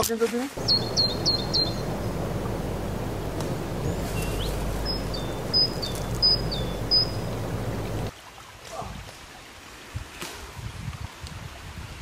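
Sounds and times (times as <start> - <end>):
songbird chirping: 0.6 - 8.1
steady rushing background noise: 0.6 - 8.1.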